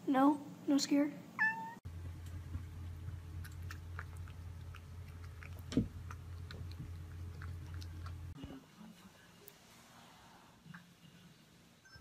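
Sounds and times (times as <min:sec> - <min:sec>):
steady low hum: 0:00.4 - 0:08.6.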